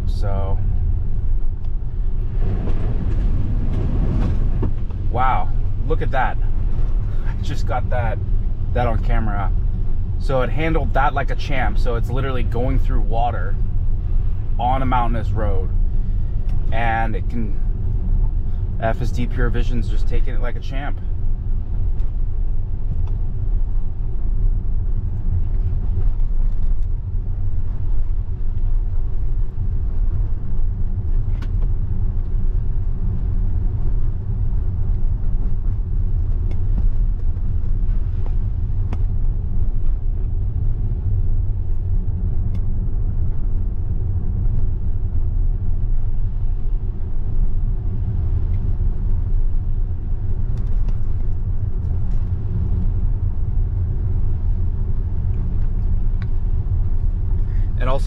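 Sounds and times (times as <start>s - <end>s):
tyre rumble on wet road: 0.9s - 7.4s.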